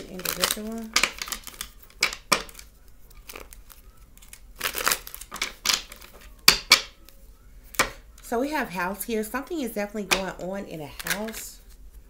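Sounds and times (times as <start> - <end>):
cards being shuffled: 0.0 - 8.2, 10.9 - 12.0.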